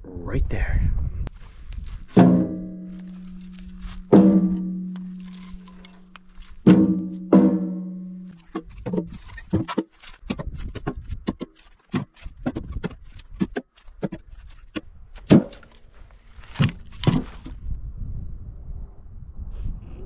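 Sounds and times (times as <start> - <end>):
logs knocking into metal bucket: 2.1 - 15.8.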